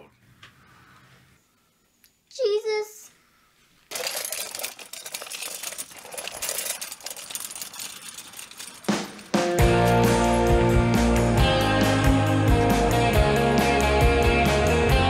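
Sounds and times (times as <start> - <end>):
wagon wheels rattling on concrete: 3.9 - 10.5
rock music with guitar: 9.4 - 15.0.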